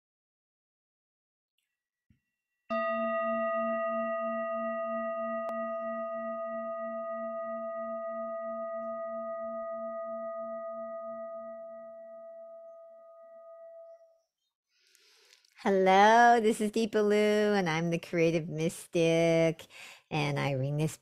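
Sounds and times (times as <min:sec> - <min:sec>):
metal singing bowl ringing: 0:02.7 - 0:14.1.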